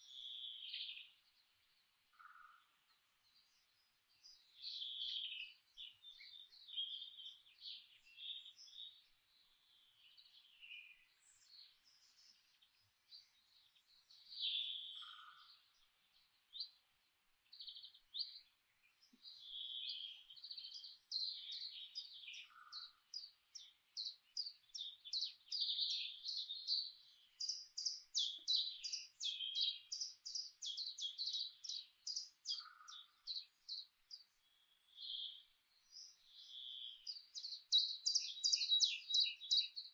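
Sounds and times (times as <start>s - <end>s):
songbirds chirping and singing: 0.0s - 39.9s.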